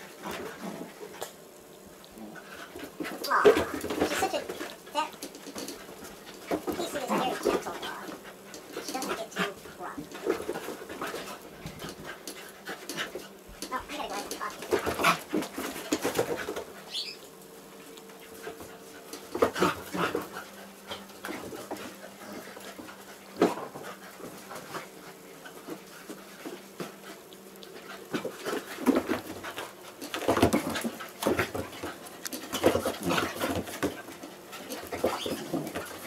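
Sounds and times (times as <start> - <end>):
dogs panting: 2.1 - 36.0
dogs growling and barking bursts: 18.2 - 25.5, 26.6 - 36.0.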